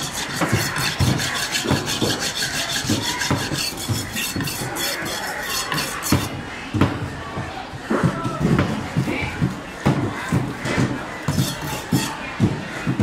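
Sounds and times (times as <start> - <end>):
knife rasping strokes: 0.0 - 6.4, 11.2 - 12.2.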